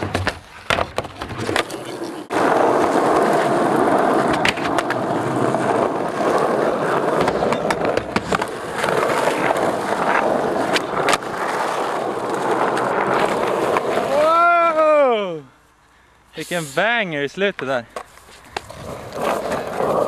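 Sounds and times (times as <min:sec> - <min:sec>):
skateboard clacks: 0:00.0 - 0:14.1
skateboard wheels rolling on asphalt: 0:00.0 - 0:15.3, 0:16.8 - 0:20.0.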